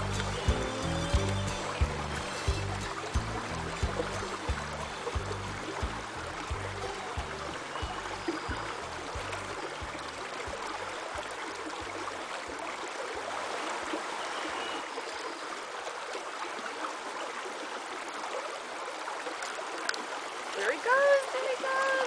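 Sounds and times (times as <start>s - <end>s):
river water rushing: 0.0s - 22.0s.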